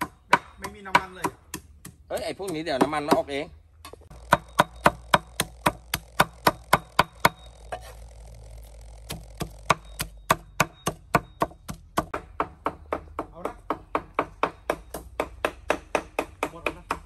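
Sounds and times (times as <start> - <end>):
cleaver chopping meat on wood: 0.0 - 3.3, 9.1 - 17.0.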